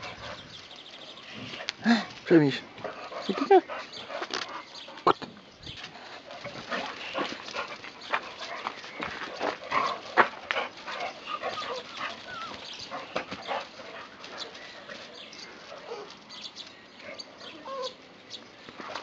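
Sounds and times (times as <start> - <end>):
dogs barking: 6.2 - 16.2
dog whining and yelping: 11.3 - 12.7.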